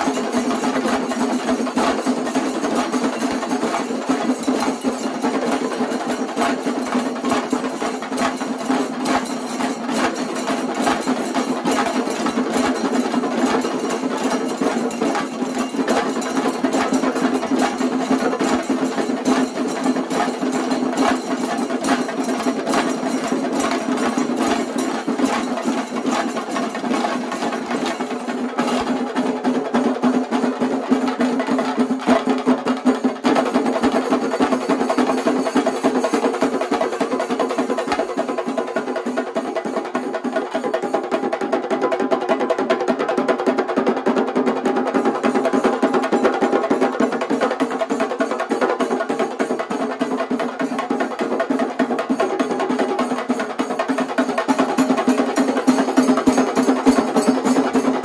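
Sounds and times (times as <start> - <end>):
hand cymbals clashing: 0.0 - 38.6, 53.1 - 58.0
chenda drums rolling: 2.0 - 32.2.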